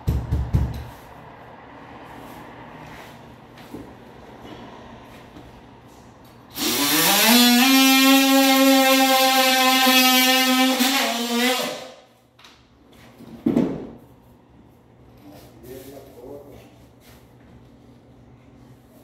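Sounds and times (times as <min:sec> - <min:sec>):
cordless drill motor: 0:06.6 - 0:11.8.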